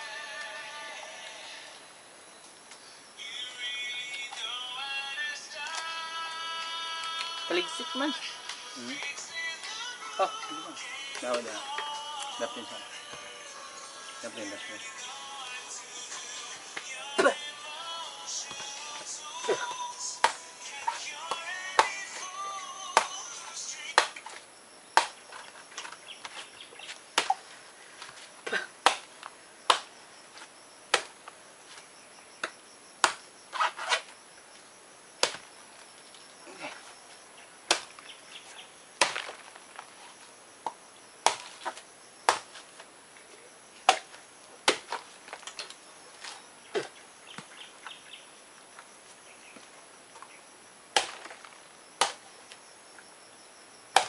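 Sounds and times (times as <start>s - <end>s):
knife chopping coconut husk: 35.2s - 35.4s, 37.7s - 38.0s, 39.0s - 39.4s, 41.2s - 42.6s, 43.9s - 45.0s, 51.0s - 51.4s.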